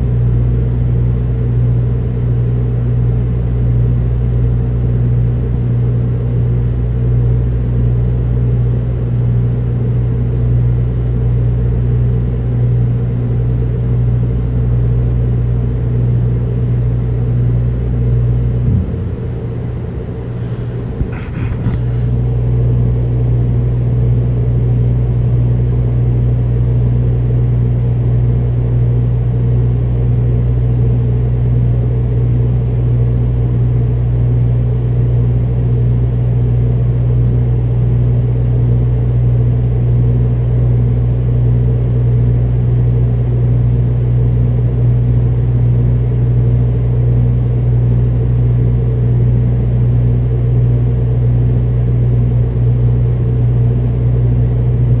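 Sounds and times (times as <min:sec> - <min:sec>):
low mechanical hum: 0:00.0 - 0:55.0.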